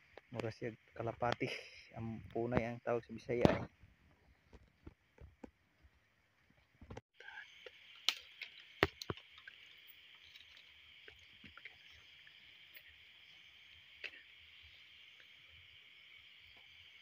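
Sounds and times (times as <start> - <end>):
insect chorus buzzing: 7.2 - 17.0.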